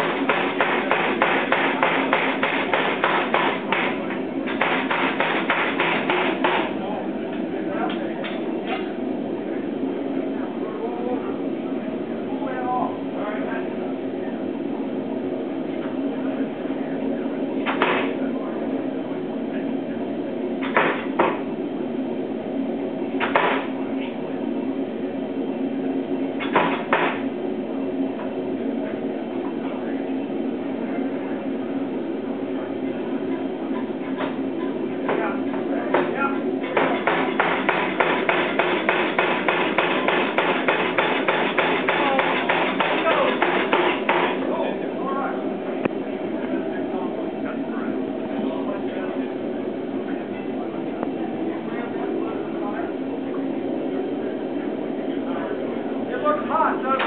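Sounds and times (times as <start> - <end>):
hammer striking hot steel: 0.0 - 6.8, 17.7 - 18.1, 20.6 - 21.4, 23.2 - 23.7, 26.4 - 27.2, 35.9 - 44.4
machine running hum: 0.0 - 57.0.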